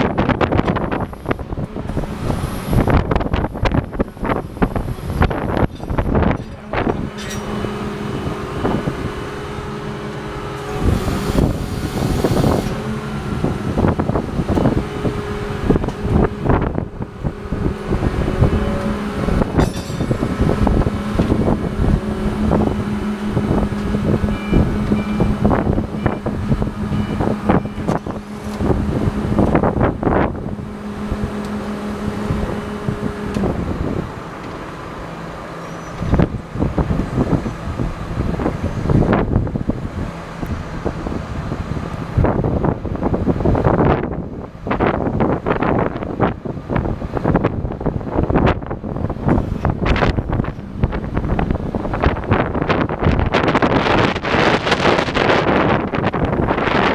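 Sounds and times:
heavy machinery humming: 0.0 - 56.9
sharp knocks and clanks: 5.0 - 7.7, 18.7 - 21.5.

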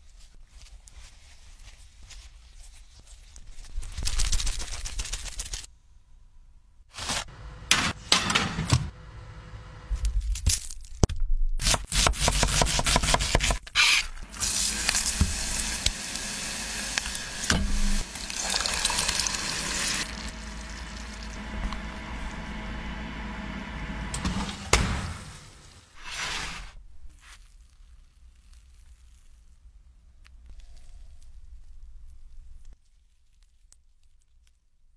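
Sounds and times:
food sizzling in a hot pot: 14.7 - 20.3.

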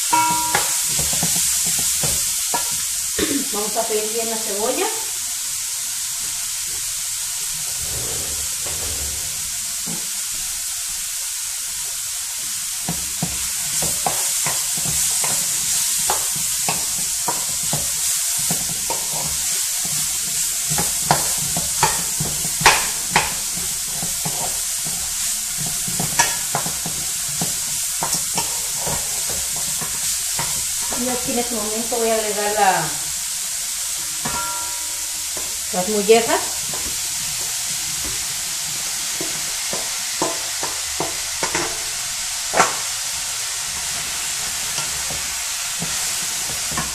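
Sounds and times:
onion sizzling in a pan: 0.0 - 46.9
spatula knocking against pan: 0.2 - 2.7, 20.8 - 23.4
wooden spatula scraping a pan: 7.6 - 10.1.

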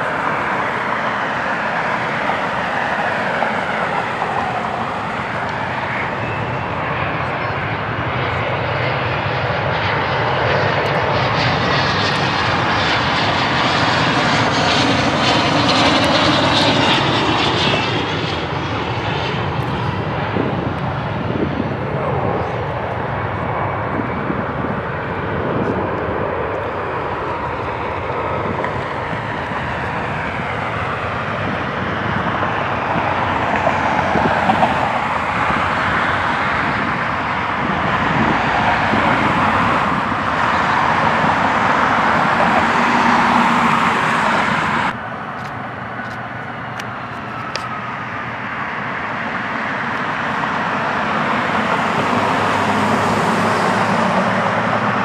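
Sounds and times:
distant jet engines roaring: 0.0 - 55.0
taxiing jet engine: 0.0 - 55.0.

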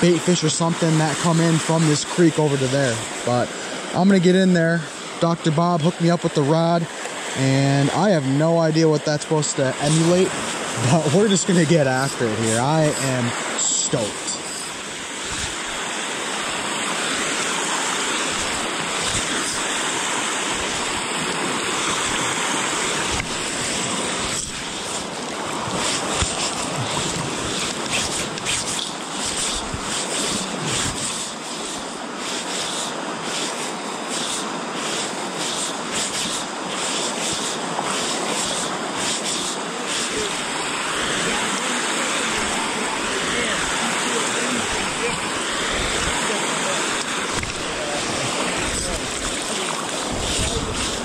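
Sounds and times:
waves lapping on stony shore: 0.0 - 51.0
wind buffeting microphone: 15.2 - 15.8, 50.0 - 51.0.

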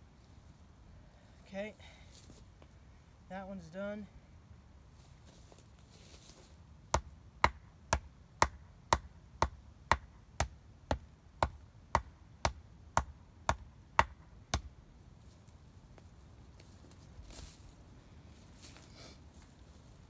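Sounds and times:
axe knocking on wooden stake: 6.9 - 14.7.

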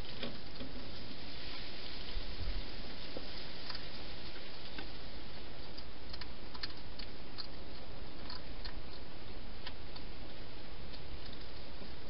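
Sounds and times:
steady hiss: 0.0 - 12.0
hedgehog eating clicks: 3.6 - 4.0, 5.6 - 12.0.

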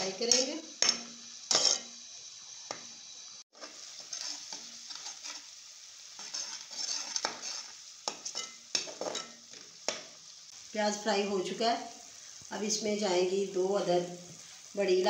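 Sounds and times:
onions sizzling in hot oil: 0.0 - 15.0
spatula scraping and knocking pan: 0.3 - 2.9, 3.6 - 10.2.

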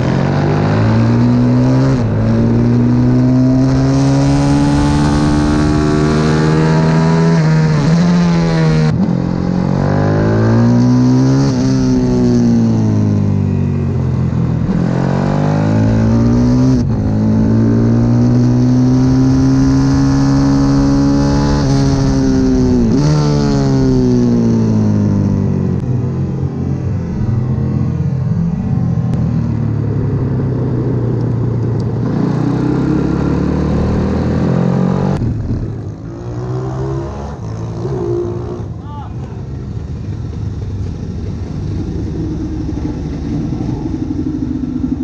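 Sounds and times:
motorbike engine revving hard: 0.0 - 13.3, 14.6 - 25.5.

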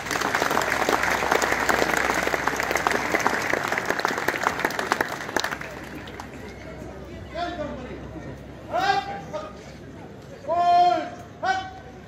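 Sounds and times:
crowd applauding: 0.0 - 6.6.

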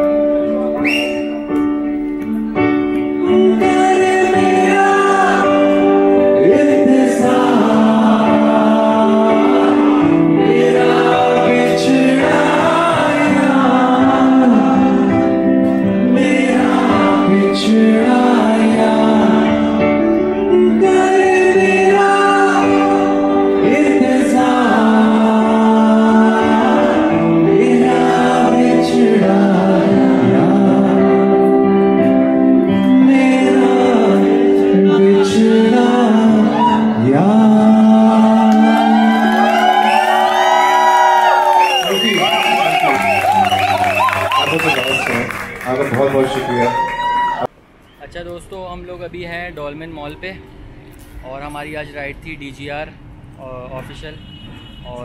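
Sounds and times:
electric guitar: 0.0 - 41.8
man singing into a microphone: 3.1 - 40.4.

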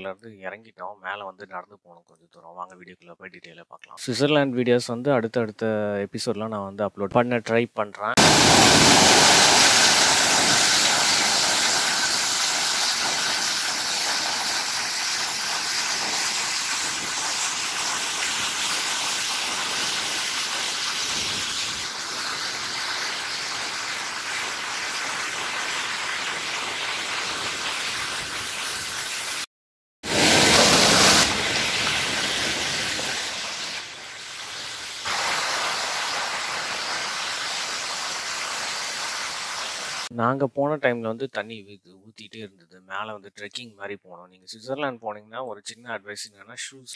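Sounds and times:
waterfall rushing over rocks: 8.2 - 26.0, 30.1 - 40.1.

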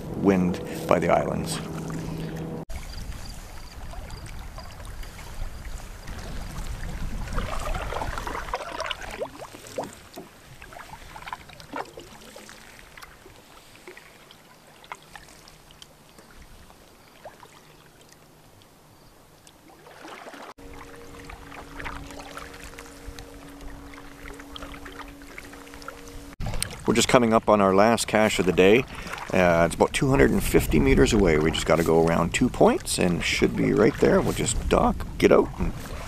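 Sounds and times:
low rumble: 0.0 - 8.4
paddle strokes through water: 0.0 - 36.0
water drips and light splashes: 1.8 - 26.8.

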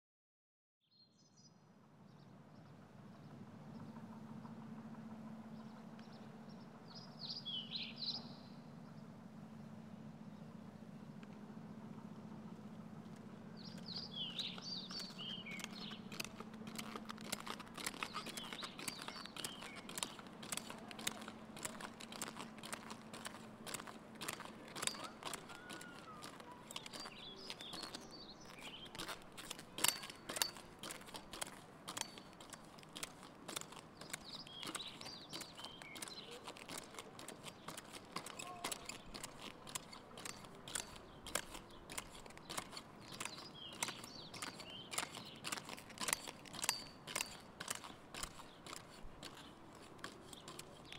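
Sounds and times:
birds chirping: 5.4 - 11.3, 12.2 - 50.9
pogo stick clacking on asphalt: 13.1 - 50.9.

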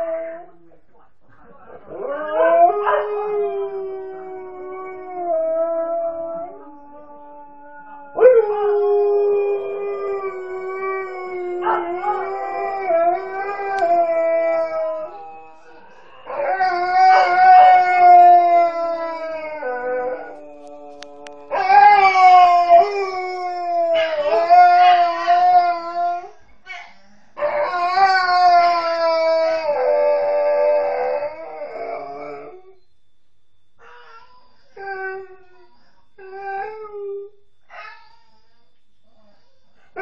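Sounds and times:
dog howling: 0.0 - 0.6, 1.8 - 26.8, 27.4 - 32.8.

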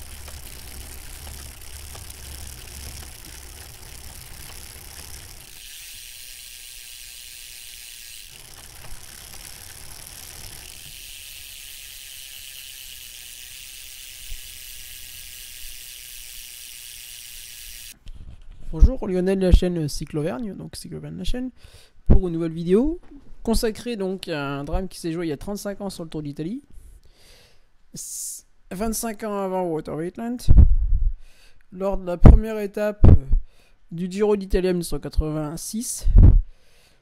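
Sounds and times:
bicycle wheels whirring: 0.0 - 18.0.

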